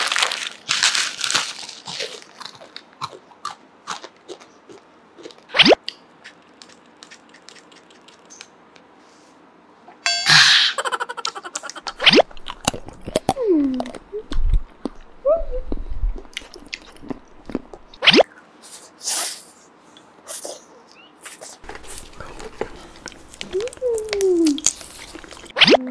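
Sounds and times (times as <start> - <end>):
plastic packet tearing and crinkling: 0.0 - 2.8, 21.6 - 25.5
candy crunching and chewing: 0.0 - 5.6, 12.1 - 15.1, 21.6 - 25.6.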